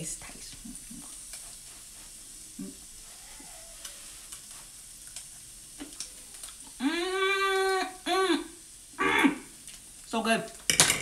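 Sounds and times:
crab meat sizzling in a skillet: 0.0 - 11.0
woman humming mmm: 2.5 - 4.1, 6.7 - 9.5.

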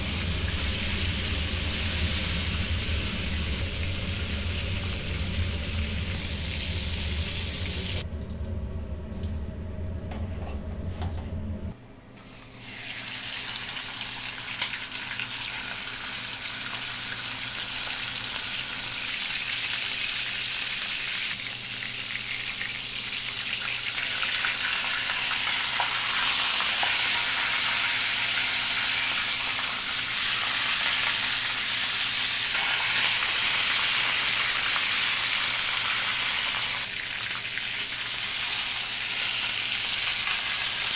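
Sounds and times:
beef sizzling in frying pan: 0.0 - 8.0, 12.4 - 40.9
low steady hum: 0.0 - 12.6.

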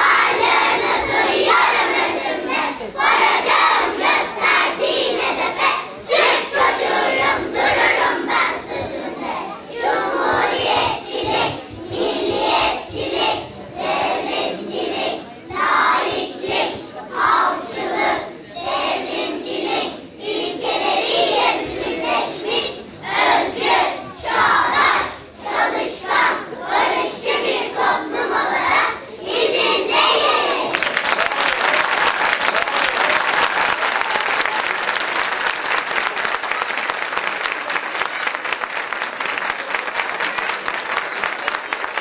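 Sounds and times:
children chanting in unison: 0.0 - 31.6.

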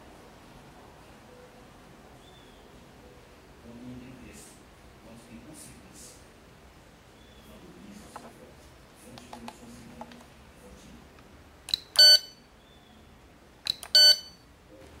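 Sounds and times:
plastic handling clicks: 9.2 - 10.3
tester click: 11.7 - 12.3, 13.6 - 14.3
short electronic beeps: 11.7 - 12.4, 13.7 - 14.4.

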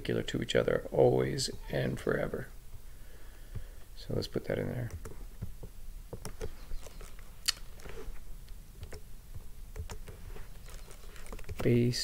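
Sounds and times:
mouse and keyboard clicks: 9.7 - 11.8.

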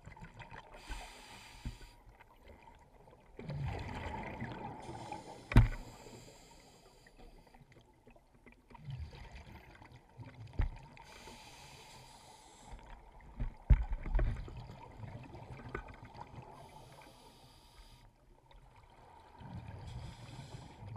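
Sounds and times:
regulator bubbles hissing underwater: 0.6 - 2.0, 3.5 - 7.6, 11.0 - 12.9, 16.3 - 18.1, 19.7 - 20.9.

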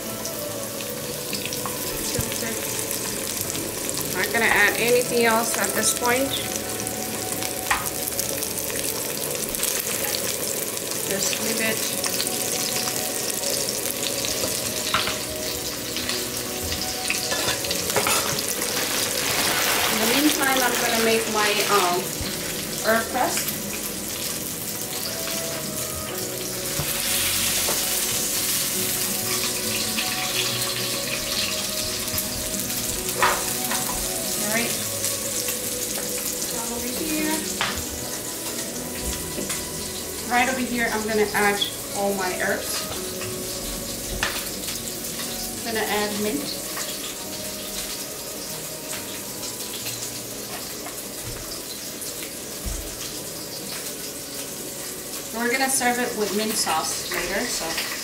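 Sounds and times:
meat searing in oil: 0.0 - 58.0.

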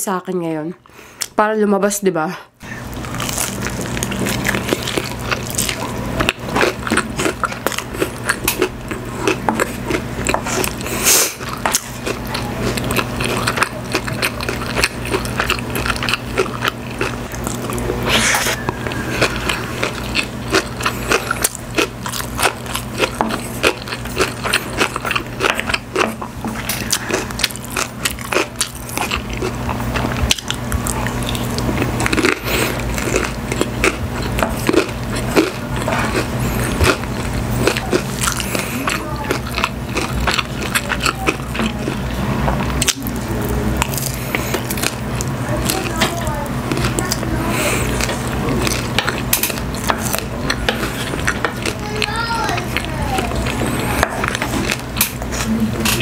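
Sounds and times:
steady low hum: 0.0 - 56.0
crunchy chewing and mouth clicks: 2.8 - 56.0.

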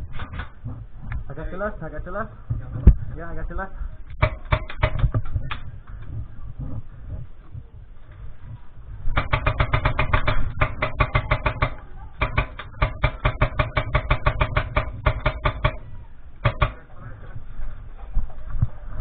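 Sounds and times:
airsoft rifle automatic fire: 9.2 - 16.8.

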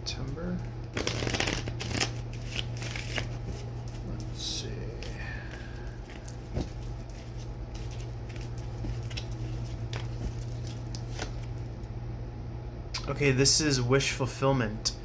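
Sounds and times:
steady low hum: 0.0 - 15.0
cards being shuffled: 0.9 - 4.3, 4.9 - 11.6.

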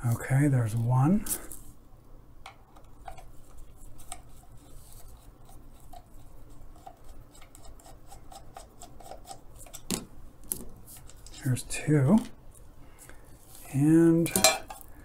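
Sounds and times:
screwdriver clicks and scrapes: 6.8 - 9.9.

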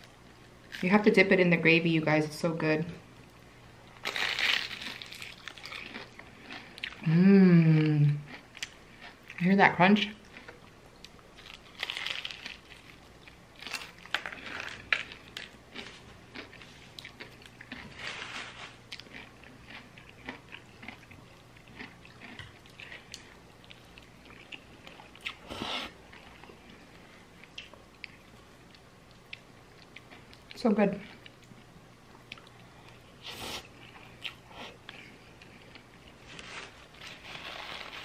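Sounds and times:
crunching fried chicken: 4.0 - 7.2, 11.3 - 25.5, 35.7 - 38.0.

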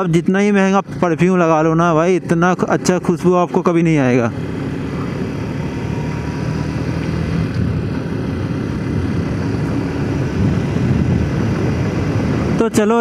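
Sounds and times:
motorcycle engine hum: 0.0 - 13.0
wind noise: 5.0 - 13.0.

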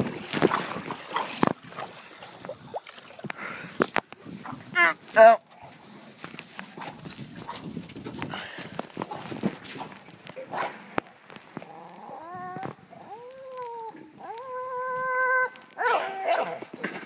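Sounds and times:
dog whining: 12.0 - 16.6.

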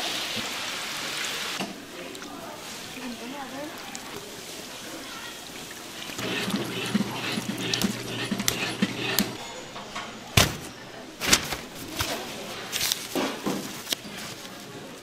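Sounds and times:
donuts frying in oil: 2.6 - 9.4.

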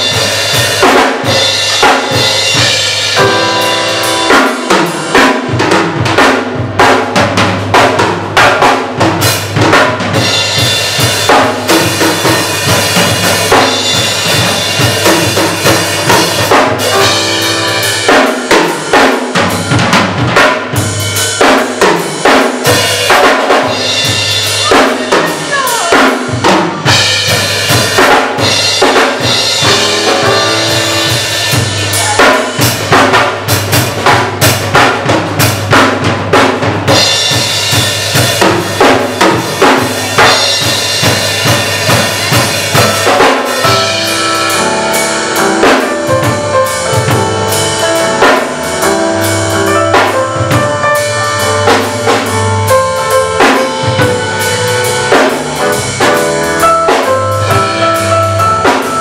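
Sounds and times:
drum kit: 0.0 - 59.0
electric bass solo: 11.6 - 18.1, 28.4 - 32.3, 41.4 - 59.0.

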